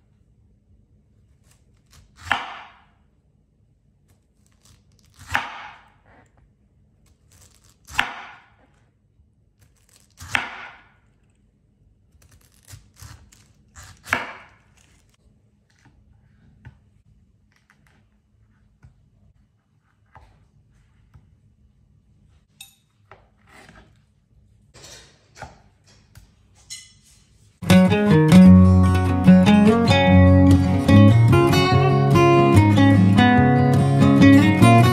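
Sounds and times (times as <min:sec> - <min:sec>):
knife cutting pineapple on board: 0:01.3 - 0:03.0, 0:04.1 - 0:06.4, 0:07.0 - 0:08.8, 0:09.6 - 0:11.0, 0:12.1 - 0:16.8.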